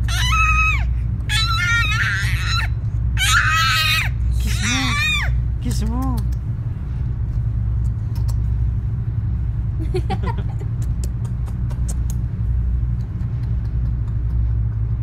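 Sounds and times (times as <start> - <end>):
squeaky vocal sound: 0.0 - 5.3
steady low rumble: 0.0 - 15.0
soft kissing smacks: 6.0 - 6.5, 7.8 - 8.5, 10.8 - 12.2, 12.9 - 14.4.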